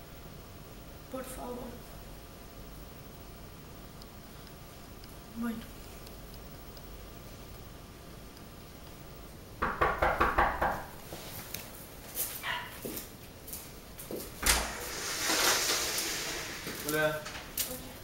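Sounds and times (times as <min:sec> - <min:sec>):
sharp knock: 0:09.6 - 0:10.8.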